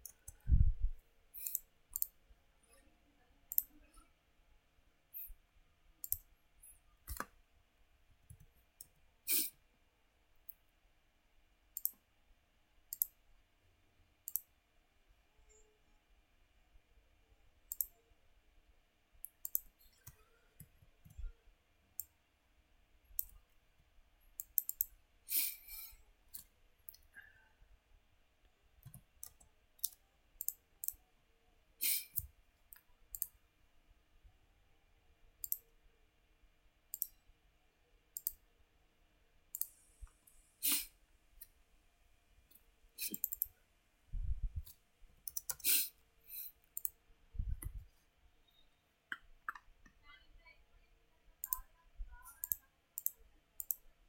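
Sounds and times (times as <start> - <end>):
mouse buttons clicking: 1.4 - 2.2, 3.5 - 3.8, 6.0 - 6.3, 11.8 - 12.0, 12.9 - 13.2, 14.3 - 14.5, 17.7 - 18.0, 19.2 - 21.2, 24.4 - 25.0, 31.9 - 33.4, 35.4 - 35.6, 36.9 - 37.2, 38.2 - 38.4, 39.5 - 39.8, 43.0 - 43.5, 44.6 - 45.8, 51.4 - 53.8.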